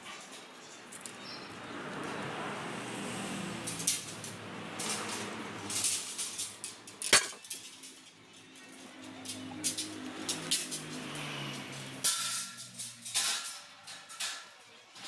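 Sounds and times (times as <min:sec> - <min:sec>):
metallic clinks on tube frame: 0:05.7 - 0:15.0.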